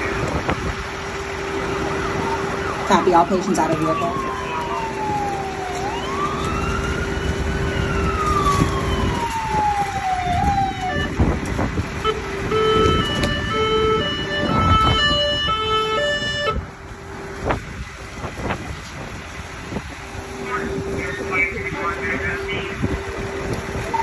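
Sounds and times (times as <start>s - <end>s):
emergency siren wailing: 0.0s - 24.0s
vehicle engine drone: 0.0s - 24.0s.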